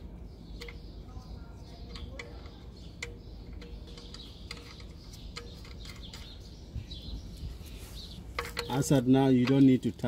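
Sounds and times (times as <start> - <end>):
drain plug threading clicks: 0.6 - 0.8, 1.8 - 6.3.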